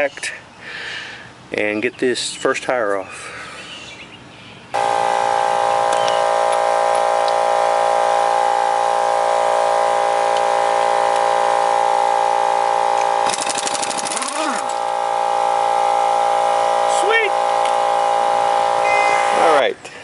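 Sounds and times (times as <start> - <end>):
air impact wrench whine: 4.8 - 19.7.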